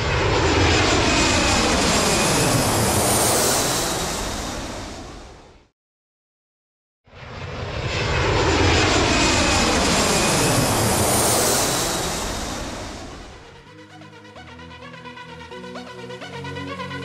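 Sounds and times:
jet airliner flying past: 0.0s - 5.7s, 7.1s - 17.0s.

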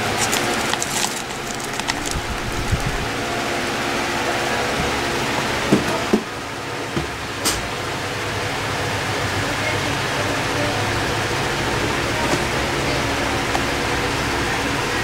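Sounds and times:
background hum and hiss: 0.0s - 15.0s.

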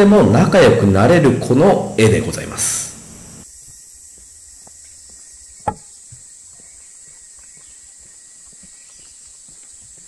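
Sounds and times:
high-pitched insect drone: 1.6s - 10.0s
footsteps on dirt trail: 3.5s - 10.0s.

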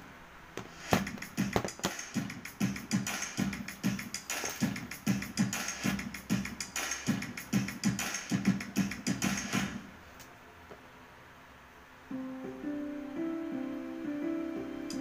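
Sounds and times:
rhythmic beat: 0.6s - 9.9s.

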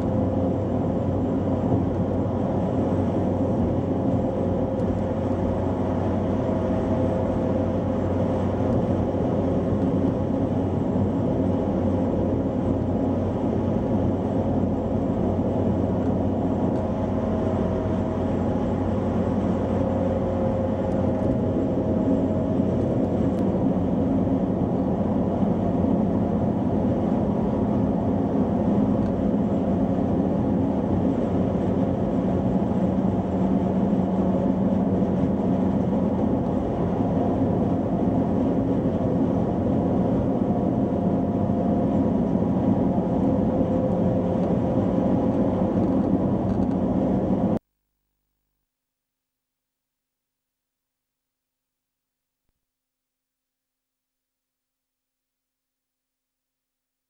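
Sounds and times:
car road and engine noise: 0.0s - 47.6s.

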